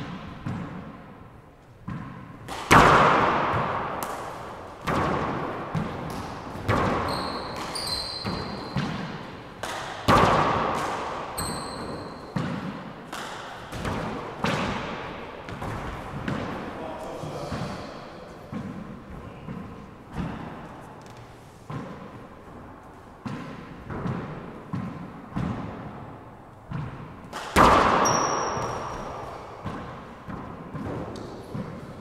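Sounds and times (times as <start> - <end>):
handball smacks echoing: 0.0 - 32.0
shoe squeaks on hardwood floor: 7.0 - 8.8, 11.4 - 12.4, 28.0 - 29.4.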